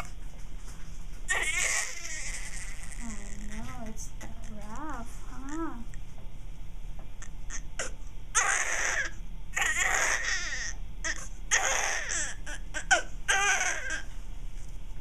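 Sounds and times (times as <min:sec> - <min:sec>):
newborn baby crying: 0:01.3 - 0:03.6, 0:07.2 - 0:14.1.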